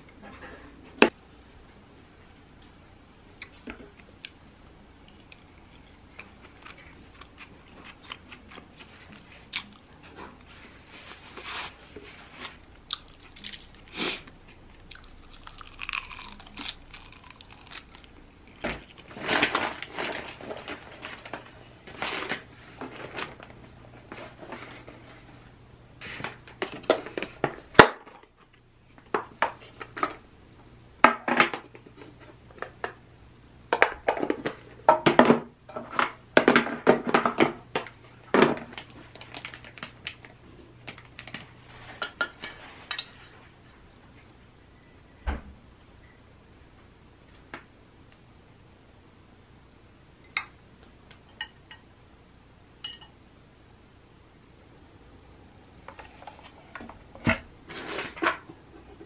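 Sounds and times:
paper crinkling and rustling: 18.6s - 25.3s, 38.5s - 43.3s.

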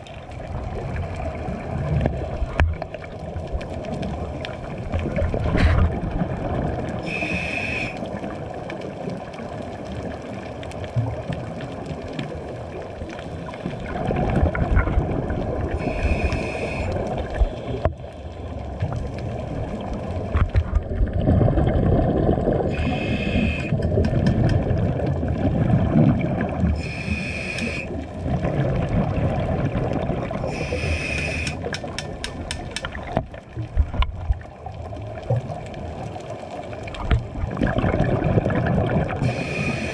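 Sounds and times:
gurgling exhaled bubbles: 0.0s - 39.9s
regulator hissing inhales: 7.0s - 8.1s, 15.8s - 17.8s, 22.7s - 23.8s, 26.8s - 27.9s, 30.5s - 31.7s, 39.2s - 39.9s
quick clicks: 31.1s - 32.9s.

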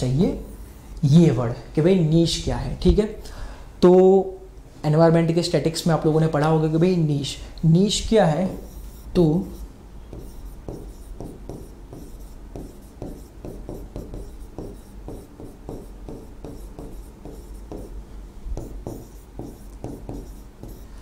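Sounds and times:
stylus scratching and tapping screen: 8.5s - 18.0s, 18.6s - 20.9s.

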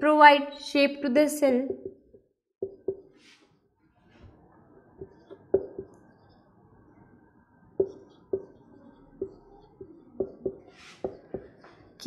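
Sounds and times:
marker pen writing on whiteboard: 2.6s - 3.6s, 5.0s - 6.4s, 7.8s - 12.0s.

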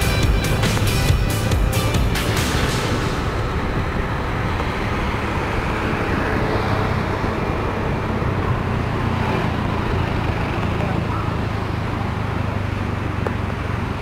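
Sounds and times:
vehicle engine and road noise: 0.0s - 14.0s.

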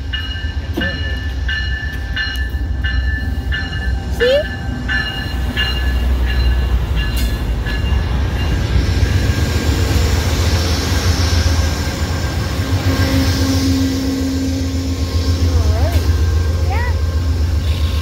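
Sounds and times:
locomotive engine rumble: 0.0s - 18.0s
rushing noise: 4.7s - 18.0s.

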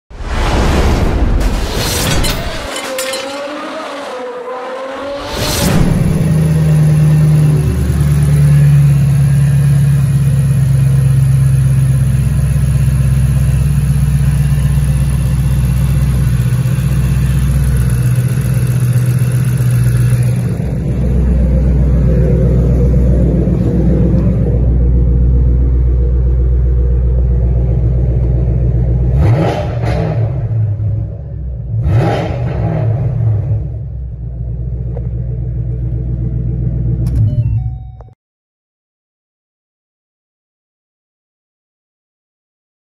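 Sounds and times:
car engine idling: 6.3s - 29.2s, 33.9s - 37.2s.

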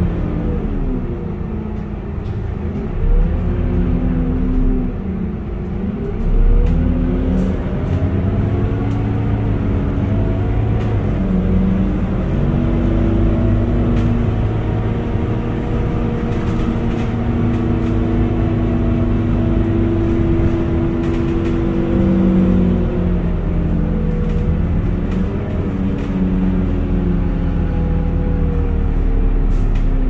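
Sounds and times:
bus engine droning with whine: 0.0s - 30.0s.

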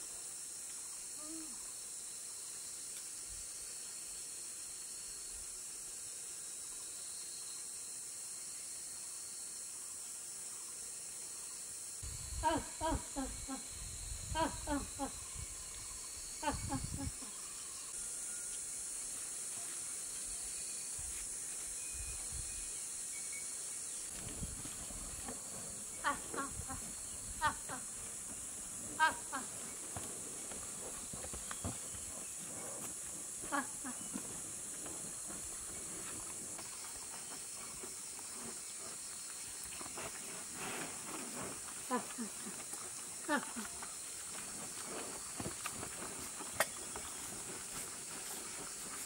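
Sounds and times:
steady high-pitched hiss: 0.0s - 49.0s
high-pitched insect drone: 11.4s - 29.8s.

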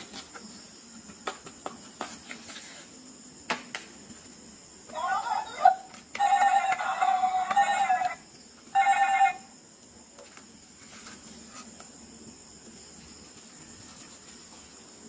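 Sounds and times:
toy microphone electronic tones: 6.2s - 8.2s, 8.8s - 9.4s.

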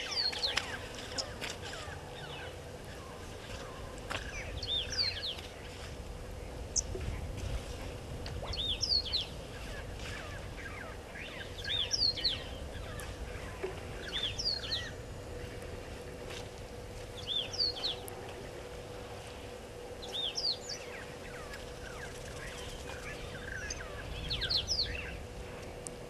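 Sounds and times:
bird whistling call: 10.1s - 12.5s, 14.0s - 15.0s.

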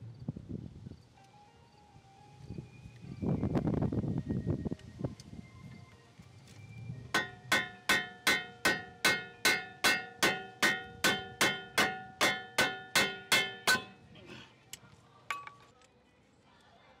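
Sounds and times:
hammer striking metal: 7.2s - 14.0s.

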